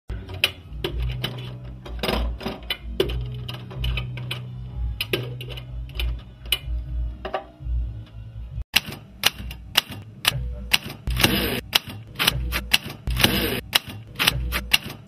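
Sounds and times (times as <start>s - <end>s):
sharp clicks and clacks: 8.8s - 15.0s.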